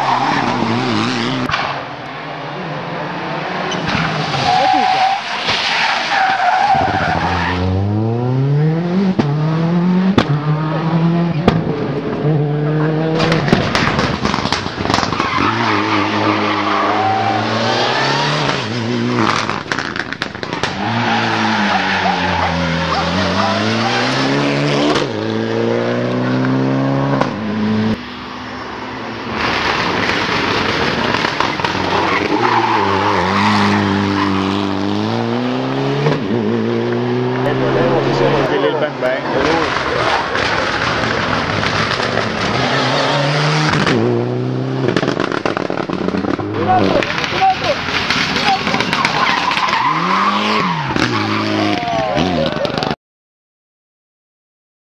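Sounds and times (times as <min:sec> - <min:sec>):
rally car engines at full throttle: 0:00.0 - 0:53.0.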